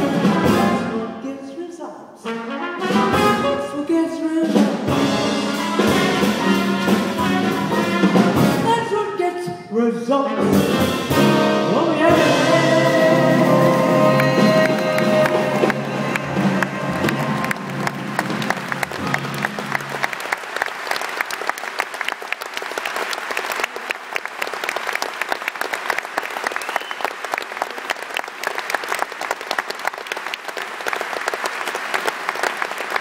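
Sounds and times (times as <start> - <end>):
band playing final notes: 0.0 - 1.0, 4.8 - 8.8, 10.4 - 20.4
audience applauding: 14.0 - 33.0.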